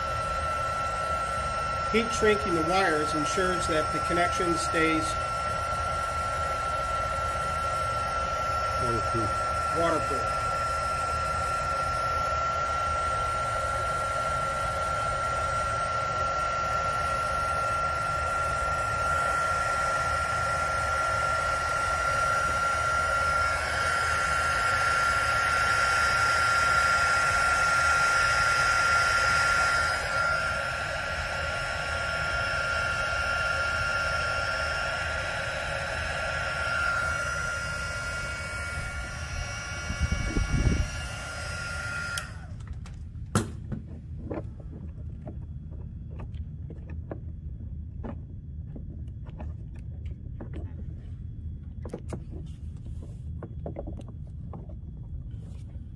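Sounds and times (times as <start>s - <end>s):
heat gun fan whining: 0.0s - 55.9s.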